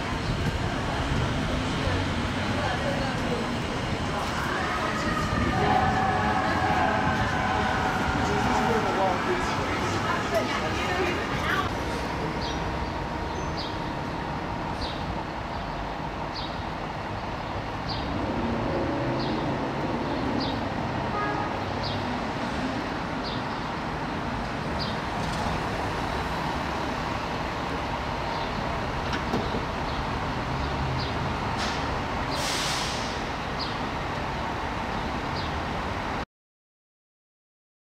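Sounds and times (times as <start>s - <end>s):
city street traffic: 0.0s - 36.2s
air brake hiss: 31.6s - 33.3s.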